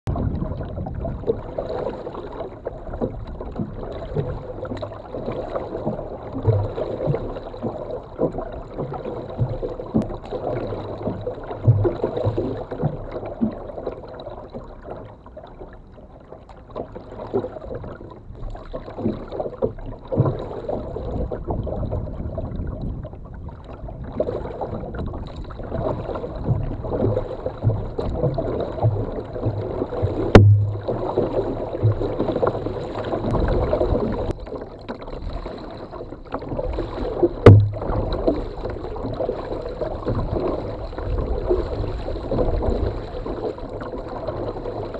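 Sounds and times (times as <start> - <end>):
low knocks through hull: 0.1 - 13.8, 16.7 - 35.4, 36.2 - 44.9
water lapping against kayak hull: 0.1 - 44.9.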